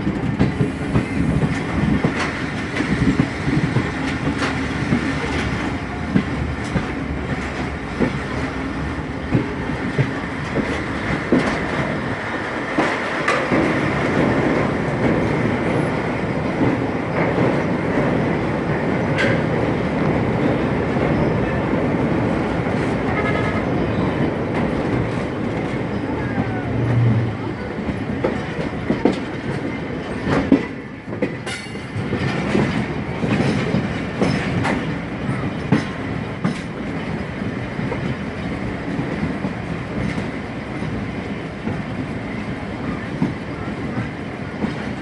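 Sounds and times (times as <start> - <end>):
wheels clicking over rail joints: 0.0 - 21.2, 27.8 - 42.2
train wheels rumbling on rail: 0.0 - 45.0.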